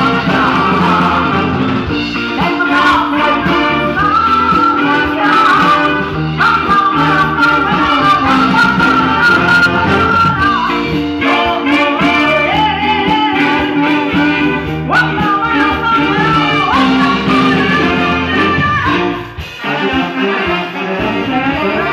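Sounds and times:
woman singing into microphone: 0.0 - 1.6, 2.2 - 20.4
brass band music with drums: 0.0 - 21.9.

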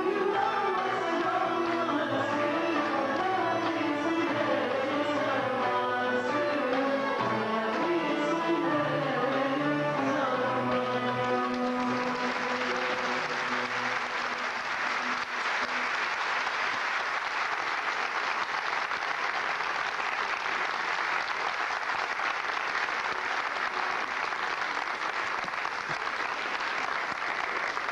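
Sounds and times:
audience applauding: 11.0 - 27.9.

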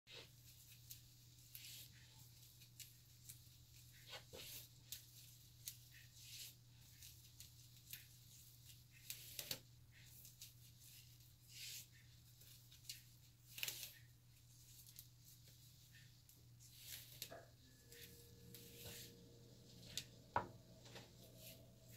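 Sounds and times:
hair rustling as it is braided: 0.1 - 21.9.

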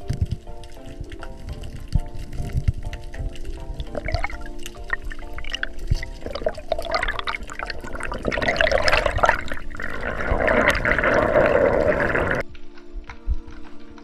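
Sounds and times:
background music with held notes: 0.0 - 11.1, 12.4 - 14.0
underwater rushing bubbling hiss: 3.9 - 12.4.

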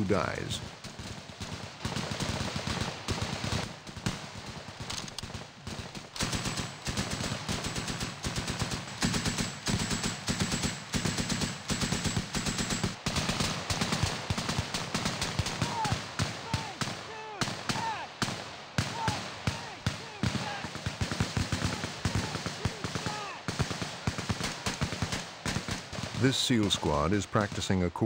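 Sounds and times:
rifle shots: 0.2 - 27.8
automatic gunfire: 0.6 - 27.8.

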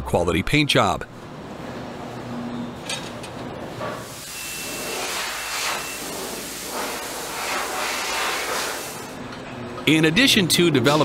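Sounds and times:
paint spray gun hissing: 4.0 - 9.1.

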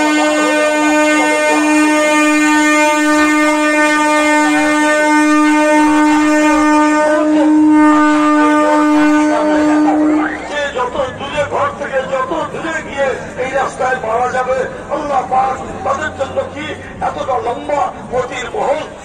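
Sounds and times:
loud horn steady note: 0.0 - 11.2
faint voices: 9.4 - 19.0.

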